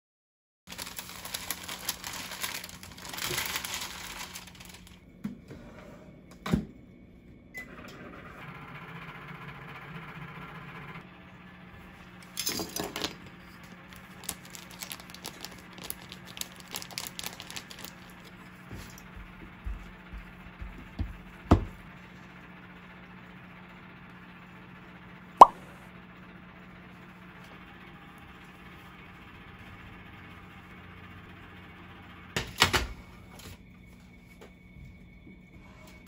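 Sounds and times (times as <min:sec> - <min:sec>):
plastic wrap crinkling: 0:00.7 - 0:05.0, 0:13.9 - 0:19.0
microwave oven humming: 0:00.7 - 0:36.0.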